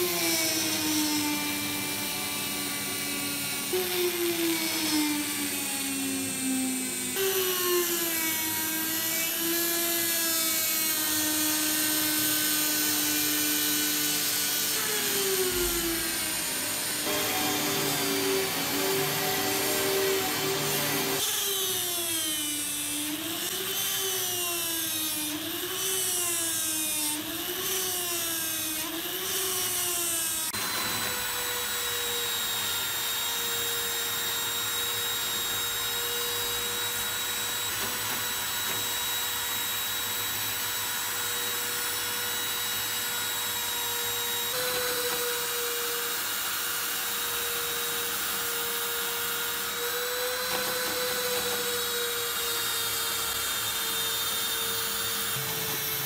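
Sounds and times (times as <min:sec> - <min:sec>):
rotary tool motor whine: 0:00.0 - 0:56.0.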